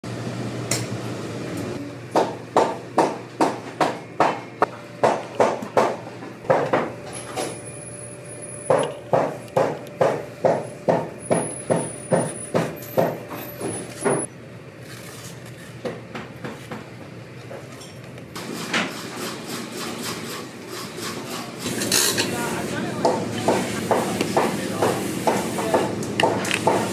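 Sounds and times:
loud sharp knocks: 5.0 - 6.9, 8.7 - 14.3.

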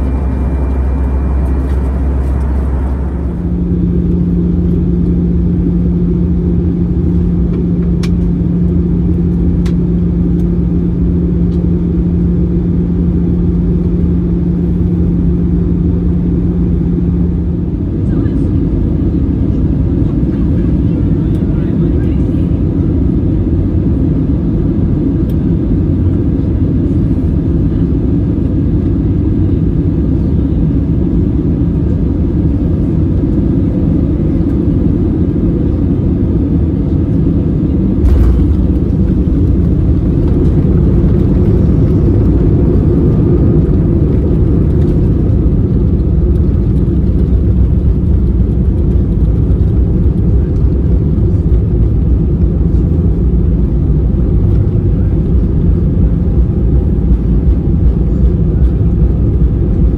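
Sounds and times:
airplane cabin engine rumble: 0.0 - 59.9.

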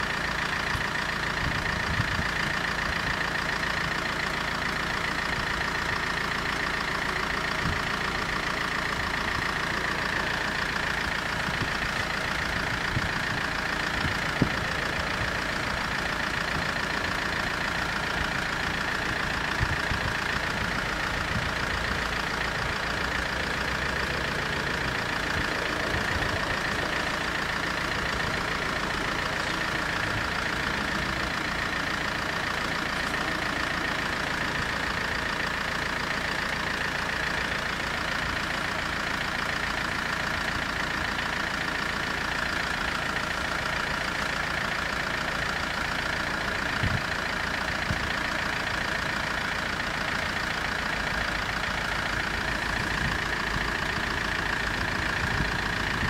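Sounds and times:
vehicle engines idling: 0.0 - 56.0.

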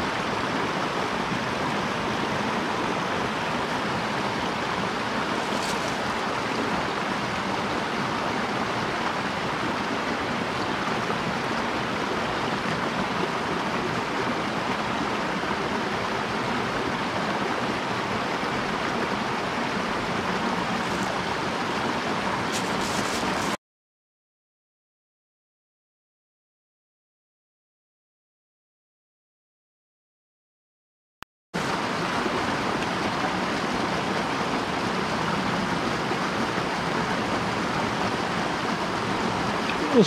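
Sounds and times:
stream splashing over cascade: 0.0 - 23.6, 31.6 - 40.0.

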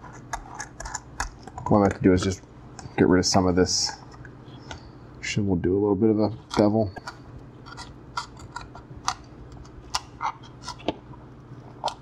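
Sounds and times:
faint low hum: 0.0 - 12.0
knife carving foam crackling: 7.6 - 10.9.

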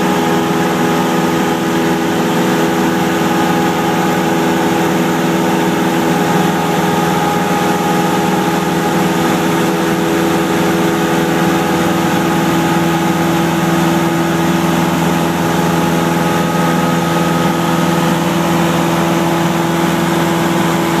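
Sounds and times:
light aircraft engine and propeller: 0.0 - 21.0.

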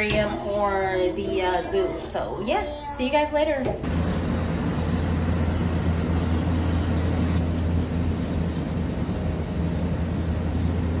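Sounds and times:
low outdoor rumble: 3.8 - 11.0.

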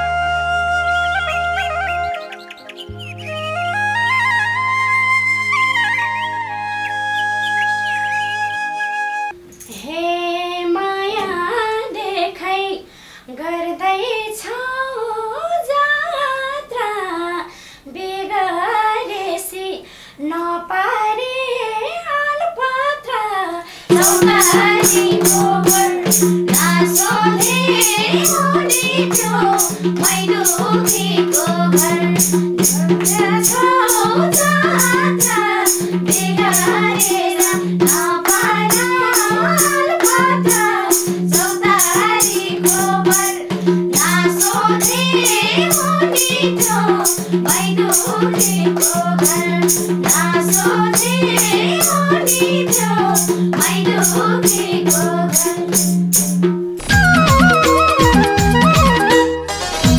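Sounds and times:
rhythmic accompaniment with held note: 0.0 - 9.8, 23.9 - 59.9
woman singing: 9.7 - 55.8
hand drum beat: 23.9 - 59.1.

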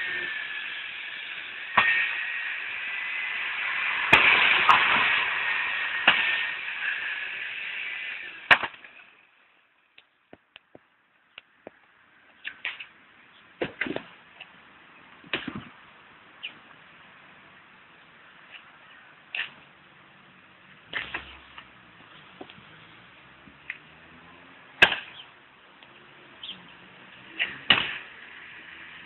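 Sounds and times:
hissing machine with whine: 0.0 - 9.4
axe splitting firewood: 1.8 - 2.2, 4.0 - 5.2, 8.5 - 9.0, 13.6 - 14.1, 24.8 - 25.2, 27.4 - 28.1.

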